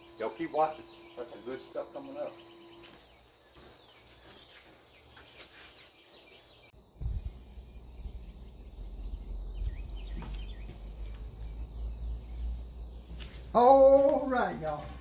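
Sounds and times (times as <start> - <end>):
birds chirping: 0.0 - 15.0
insects: 0.0 - 15.0
steady low rumble: 6.8 - 13.1.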